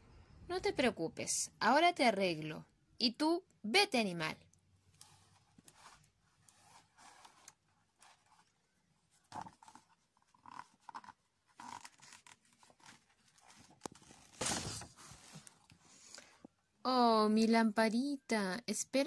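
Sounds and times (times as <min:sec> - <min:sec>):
book pages rustling: 0:04.9 - 0:16.6.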